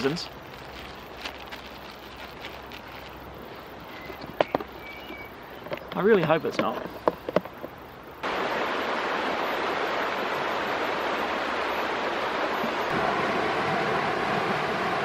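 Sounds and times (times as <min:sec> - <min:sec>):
water rushing over rocks: 0:08.2 - 0:15.0.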